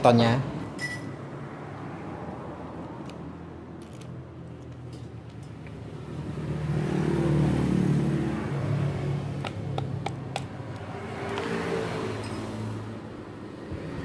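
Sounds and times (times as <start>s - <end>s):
vehicle engine passing: 5.8s - 14.0s
sharp metal taps: 9.4s - 11.5s.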